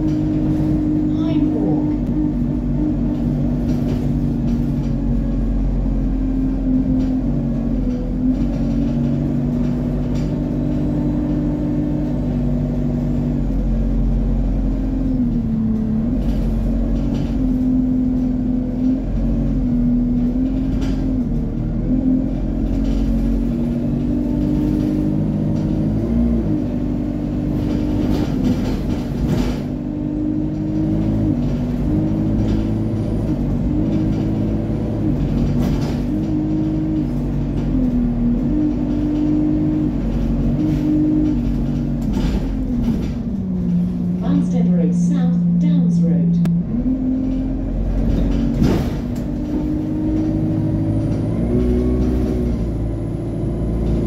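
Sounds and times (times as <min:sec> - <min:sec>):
bus engine rumble: 0:00.0 - 0:54.0.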